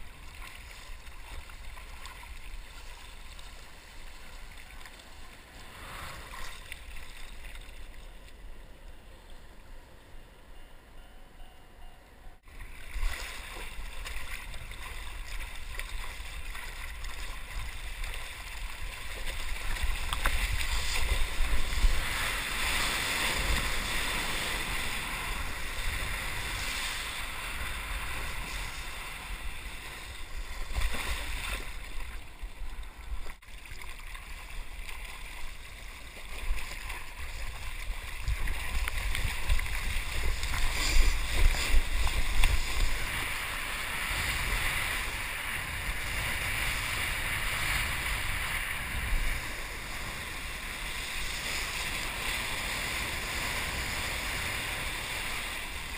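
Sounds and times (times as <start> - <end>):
water rushing around surfboard: 0.0 - 8.1, 12.5 - 55.9
wind on microphone: 14.1 - 33.4, 36.5 - 55.9.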